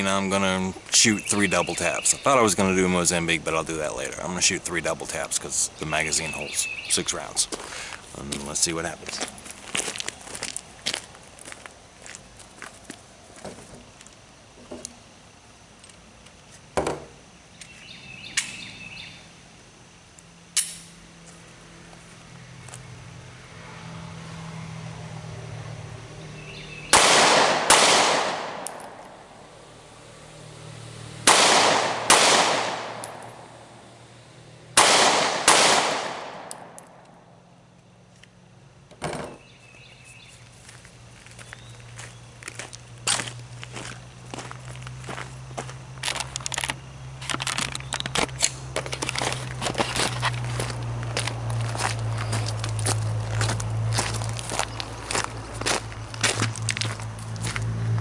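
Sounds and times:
pistol shots: 26.9s - 29.0s, 31.2s - 33.4s, 34.8s - 36.8s.

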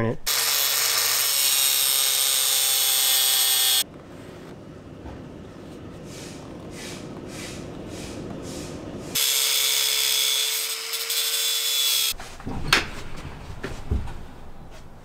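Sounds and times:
angle grinder cutting metal: 0.3s - 3.8s, 9.2s - 12.2s.

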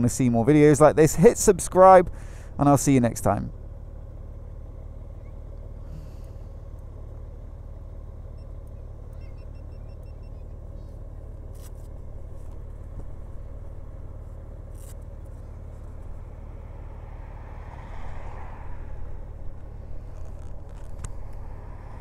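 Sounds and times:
motorcycle engine idling: 2.1s - 17.3s.

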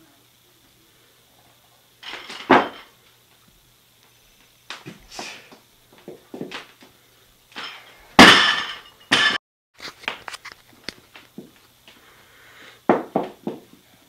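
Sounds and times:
barbell crashing on floor: 2.0s - 2.9s, 7.6s - 9.4s.

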